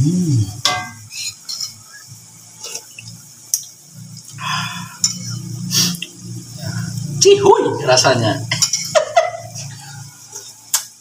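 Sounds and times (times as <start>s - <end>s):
metal spoon clinking and scraping: 0.7s - 1.8s, 5.0s - 5.4s, 8.4s - 10.9s.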